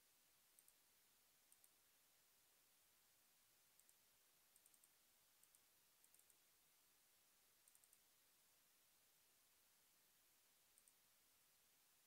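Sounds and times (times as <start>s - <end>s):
low hiss: 0.0s - 12.0s
computer mouse clicks: 0.6s - 0.8s, 1.5s - 1.8s, 3.8s - 6.4s, 7.6s - 8.0s, 10.8s - 11.0s.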